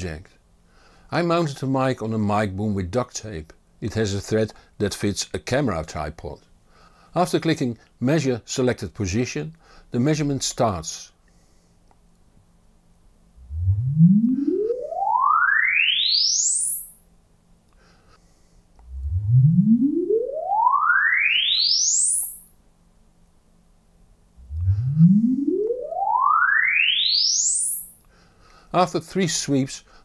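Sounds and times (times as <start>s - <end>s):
rising sine sweeps: 13.4s - 17.1s, 18.8s - 22.6s, 24.4s - 28.1s.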